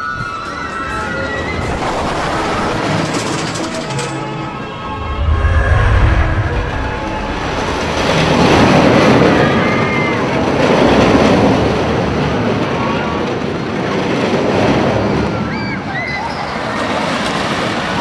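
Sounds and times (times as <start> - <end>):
roller coaster rumbling on wooden track: 0.0 - 18.0
wind noise: 1.4 - 11.5.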